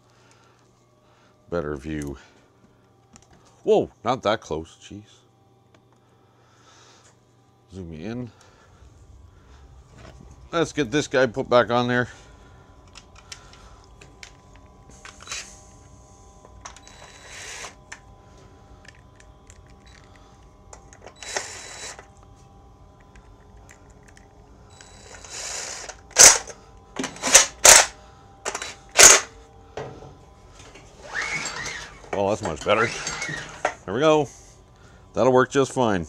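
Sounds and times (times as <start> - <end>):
cordless drill driving bolts: 16.7 - 17.8, 20.9 - 22.1, 24.8 - 27.9, 28.5 - 29.3, 31.0 - 33.8.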